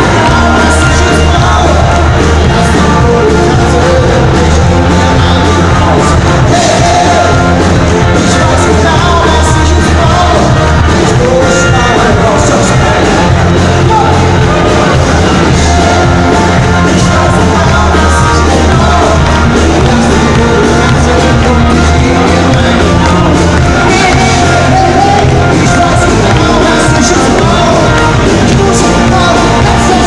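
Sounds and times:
audience shouting: 0.0 - 3.4
bass line: 0.0 - 30.0
live pop-rock band playing: 0.0 - 30.0
man singing: 0.0 - 30.0.

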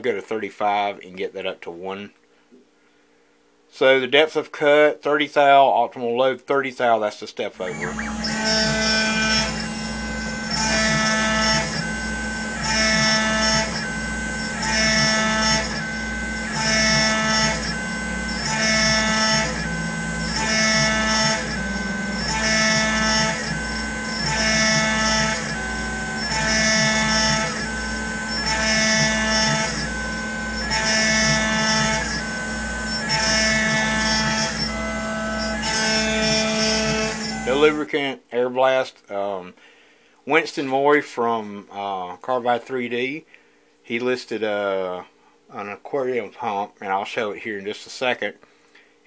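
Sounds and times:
spindle hum and whine: 7.0 - 47.7
ringing metal cutting tone: 7.5 - 38.0.

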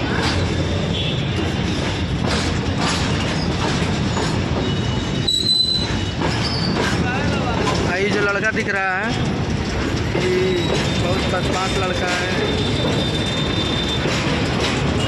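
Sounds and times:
train wheels rumbling and rattling: 0.0 - 15.0
high wheel squeal: 3.1 - 7.0, 10.4 - 15.0.

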